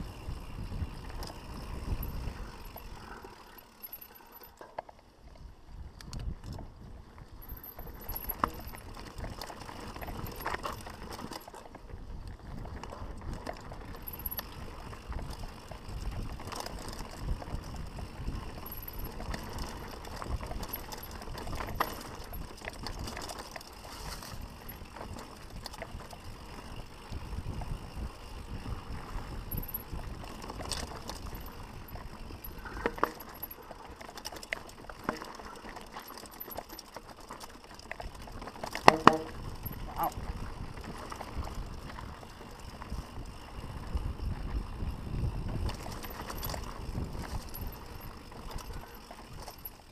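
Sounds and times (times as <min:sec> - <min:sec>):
bike tyres rumbling on dirt: 0:00.0 - 0:04.4, 0:05.0 - 0:49.9
wheels knocking on stones: 0:07.4 - 0:12.0, 0:12.6 - 0:27.7, 0:28.3 - 0:49.9.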